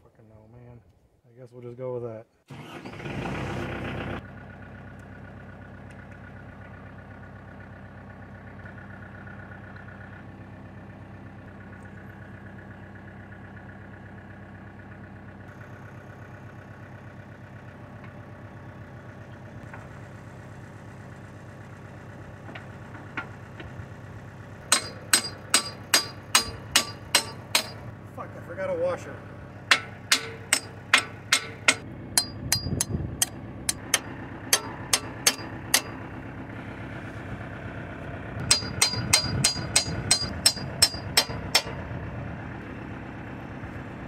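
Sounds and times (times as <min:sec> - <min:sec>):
tractor diesel engine idling: 0:02.5 - 0:44.0
sharp metallic clanks: 0:24.7 - 0:27.9, 0:29.7 - 0:36.1, 0:38.4 - 0:41.8.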